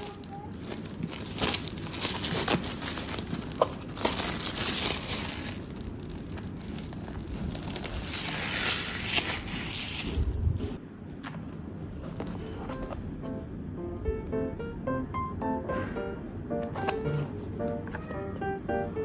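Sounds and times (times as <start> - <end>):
plastic wrapping crinkling: 0.0 - 10.8.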